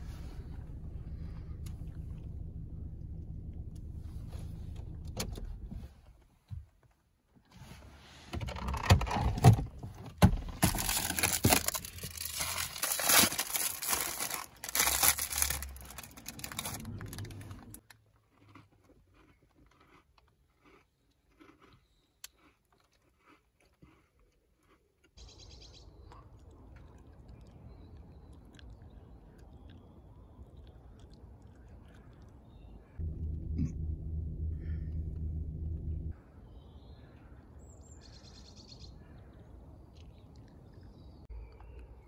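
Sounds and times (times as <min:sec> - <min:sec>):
wrapper crinkling: 0:10.6 - 0:17.8
biscuit crunching: 0:10.6 - 0:25.2
soft chewing: 0:16.3 - 0:33.8, 0:39.0 - 0:42.0.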